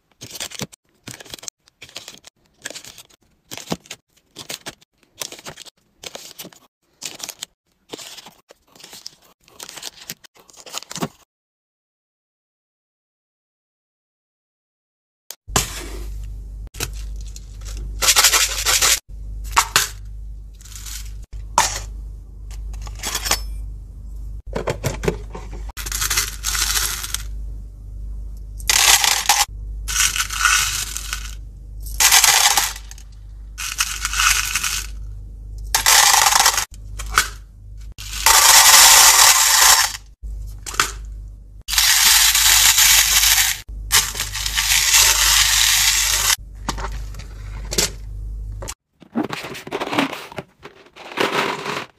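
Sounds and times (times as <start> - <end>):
candies rattling into plastic drawer: 0.2 - 9.0, 24.6 - 27.3, 28.7 - 31.4, 32.0 - 33.0, 33.6 - 35.0, 35.8 - 36.7, 41.7 - 48.0, 49.1 - 51.9
faint low hum: 15.6 - 38.0, 46.2 - 48.8.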